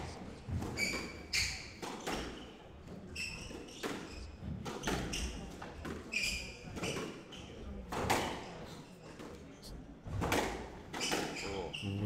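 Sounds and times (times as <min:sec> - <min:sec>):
squash ball hitting rackets and walls: 0:00.0 - 0:09.4, 0:10.0 - 0:11.6
shoes squeaking on wooden floor: 0:00.3 - 0:05.4, 0:06.0 - 0:07.6.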